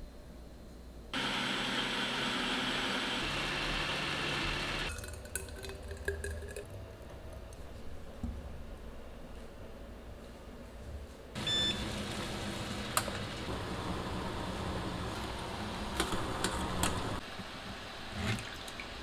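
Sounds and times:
blender motor running: 1.2 - 4.9
thick drink pouring into bottle: 4.9 - 6.7.

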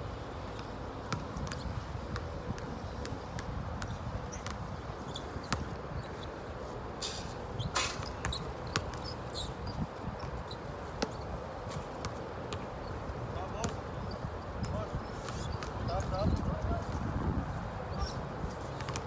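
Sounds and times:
sneaker squeaks: 1.1 - 1.8, 3.8 - 13.0, 13.6 - 16.6, 17.9 - 19.0.

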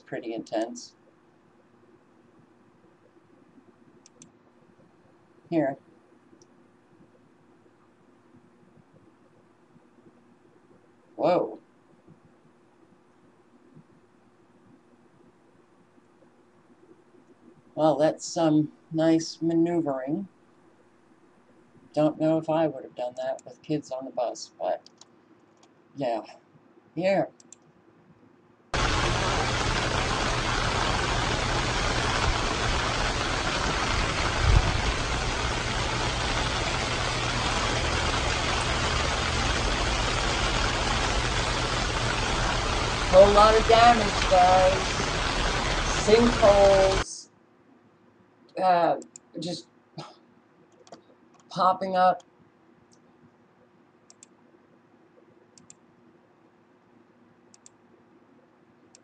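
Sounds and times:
faint room hiss: 0.0 - 59.0
computer mouse clicks: 4.0 - 4.4, 24.8 - 25.8, 27.4 - 27.7, 50.7 - 51.5, 54.1 - 54.4, 55.5 - 55.8, 57.5 - 57.8
low rumble: 28.8 - 47.0
steady rushing noise: 28.8 - 47.0.

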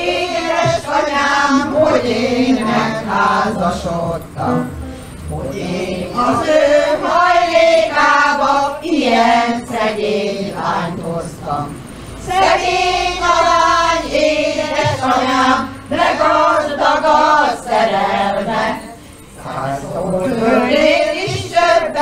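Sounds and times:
women singing together: 0.0 - 22.0
electronic keyboard: 0.5 - 22.0.

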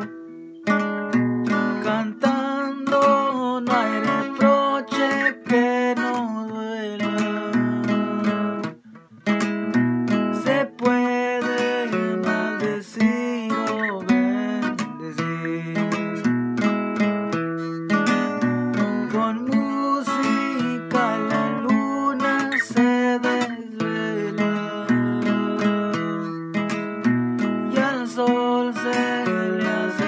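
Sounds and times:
acoustic guitar strumming: 0.0 - 30.0
man singing: 1.5 - 8.8, 10.3 - 16.4, 17.6 - 30.0.

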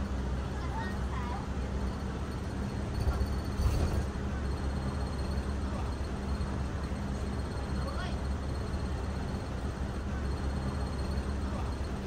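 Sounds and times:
bus engine and road rumble: 0.0 - 12.0
constant hum: 0.0 - 12.0.

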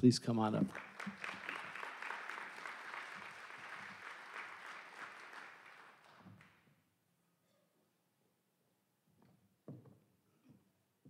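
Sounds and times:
audience applauding: 0.6 - 6.6.

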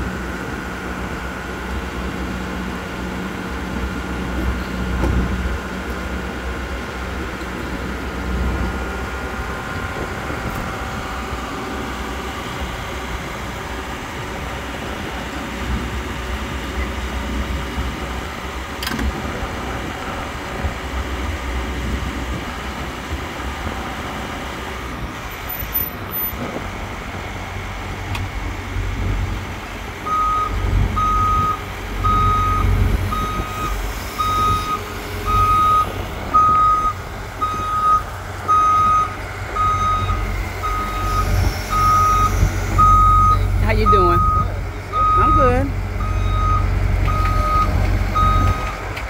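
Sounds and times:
excavator diesel engine rumbling: 0.0 - 49.0
excavator tracks moving: 0.1 - 49.0
travel alarm beeping: 30.1 - 48.8.

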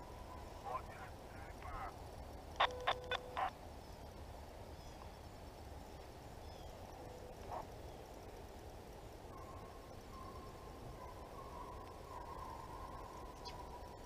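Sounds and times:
hounds barking: 7.4 - 7.7, 9.3 - 14.0.

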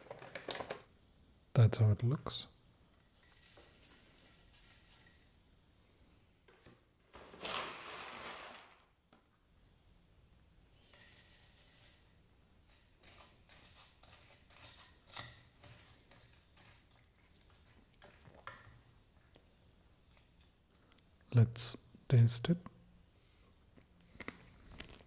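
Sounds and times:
muesli rustling into a bowl: 6.6 - 9.0
spoon scraping a bowl: 10.8 - 18.6.

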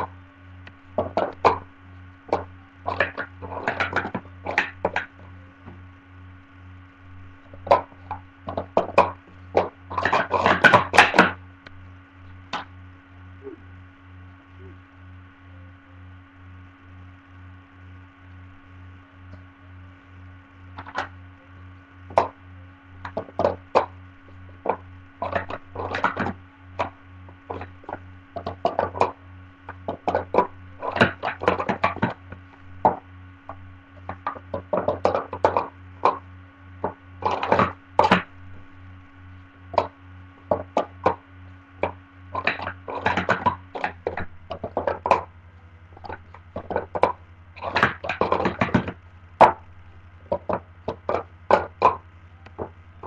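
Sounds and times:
steady electrical hum: 0.0 - 53.0
plastic cups clacking: 1.0 - 1.7, 2.3 - 5.8, 7.5 - 11.4, 20.8 - 21.1, 23.0 - 23.9, 24.5 - 36.2, 36.8 - 38.7, 39.7 - 41.2, 41.8 - 45.3, 46.0 - 49.6, 50.3 - 52.8.

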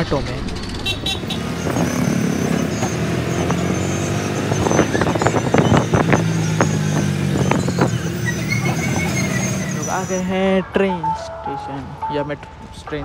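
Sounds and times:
small engine droning: 1.0 - 10.2.

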